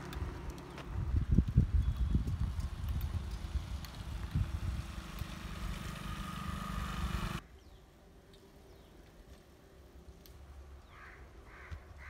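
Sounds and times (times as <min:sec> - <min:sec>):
motorcycle engine approaching: 0:00.0 - 0:07.4.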